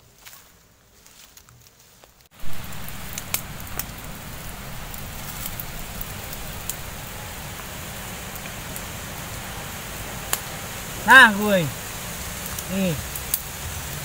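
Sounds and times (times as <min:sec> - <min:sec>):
twig fire hissing and crackling: 0:00.0 - 0:14.0
sharp pops from fire: 0:02.3 - 0:08.9, 0:10.2 - 0:14.0.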